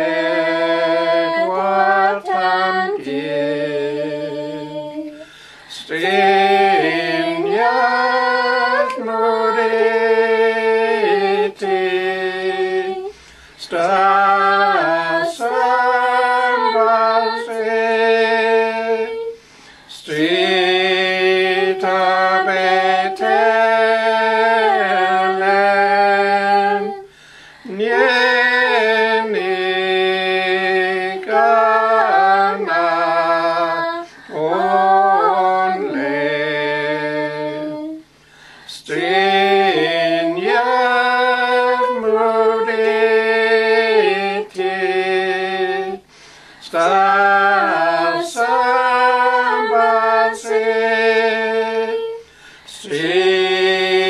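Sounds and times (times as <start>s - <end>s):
group singing a hymn: 0.0s - 54.0s.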